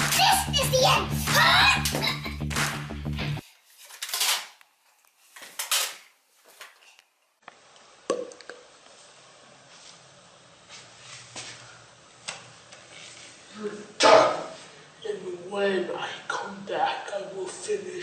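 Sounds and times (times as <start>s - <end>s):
background music: 0.0s - 3.4s.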